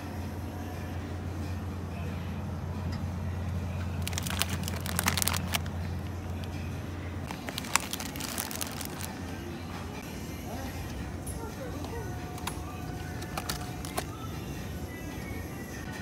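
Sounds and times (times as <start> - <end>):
low steady hum: 0.0 - 16.0
plastic packaging crinkling: 4.0 - 5.8, 7.3 - 9.2, 13.2 - 14.2.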